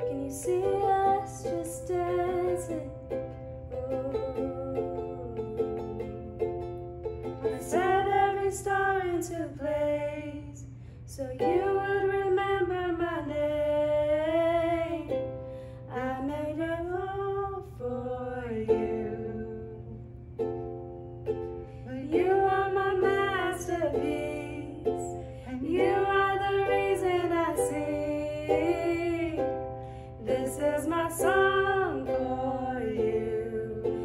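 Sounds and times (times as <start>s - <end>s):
women singing worship song: 0.0s - 2.9s, 7.5s - 15.2s, 15.9s - 20.1s, 21.8s - 34.0s
plucked ukulele: 0.0s - 34.0s.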